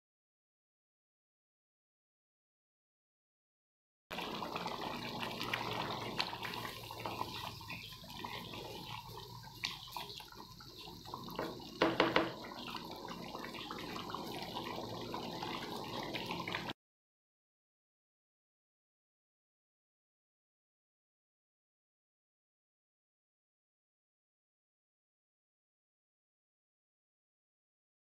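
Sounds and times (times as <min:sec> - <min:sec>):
gravy bubbling in a pan: 0:04.1 - 0:16.8.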